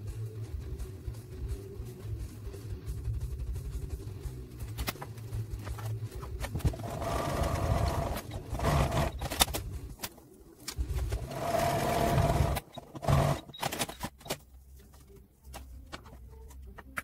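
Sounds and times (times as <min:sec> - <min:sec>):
sewing machine humming: 0:06.7 - 0:09.3, 0:11.2 - 0:13.5.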